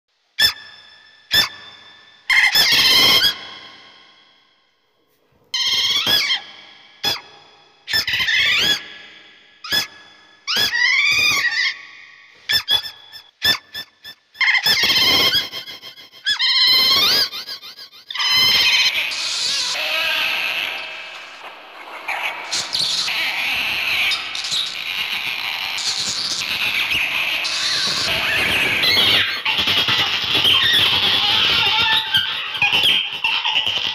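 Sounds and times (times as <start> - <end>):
otter squealing calls: 0.4 - 3.6, 5.6 - 7.3, 7.9 - 8.9, 10.5 - 33.9.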